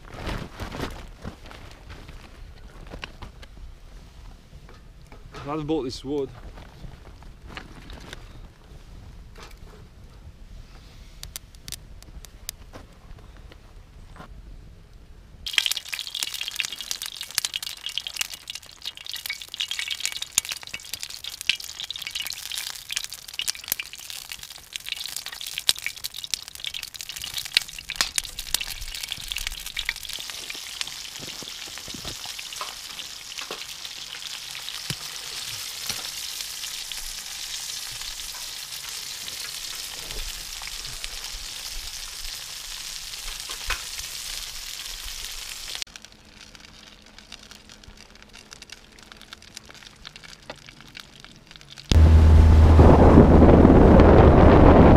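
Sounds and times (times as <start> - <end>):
sausages sizzling and popping: 11.1 - 12.7, 15.4 - 52.0.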